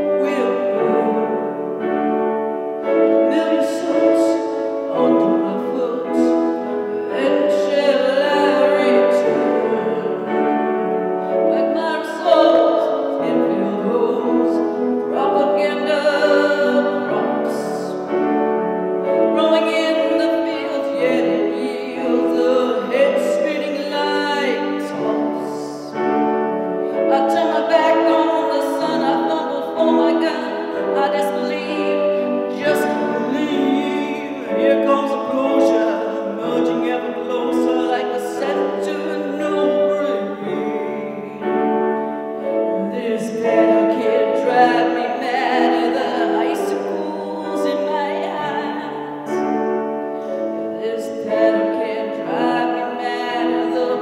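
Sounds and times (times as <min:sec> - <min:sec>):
grand piano chords: 0:00.0 - 0:54.0
woman singing: 0:00.0 - 0:54.0.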